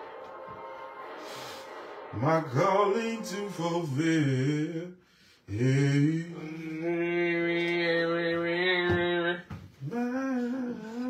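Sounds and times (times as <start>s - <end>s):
singer breathing: 1.2s - 2.1s, 5.0s - 5.5s
man singing: 2.1s - 11.0s.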